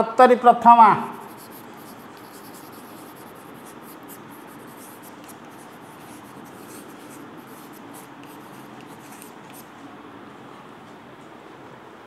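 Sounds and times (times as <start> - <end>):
chalk scratching on chalkboard: 1.1 - 9.7.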